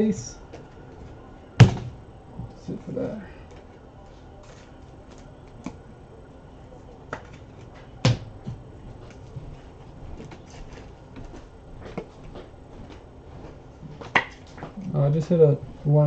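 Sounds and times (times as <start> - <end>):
soft rustling of cards: 2.4 - 5.8, 6.6 - 16.0
cards clicking and tapping: 7.1 - 8.2.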